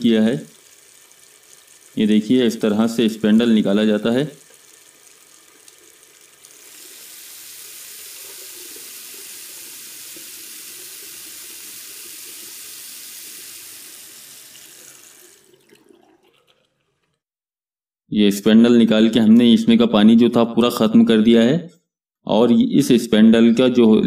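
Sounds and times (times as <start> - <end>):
water running into metal sink: 0.0 - 17.1.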